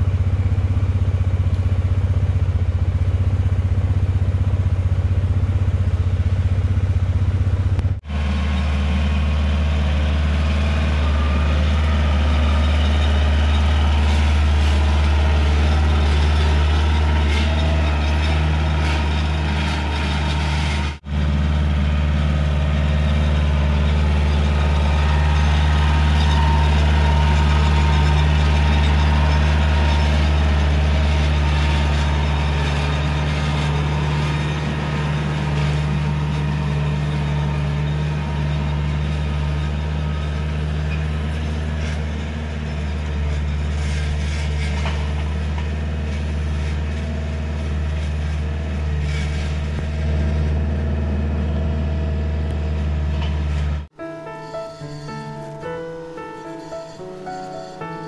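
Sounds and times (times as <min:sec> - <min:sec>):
large engine running: 0:00.0 - 0:54.1.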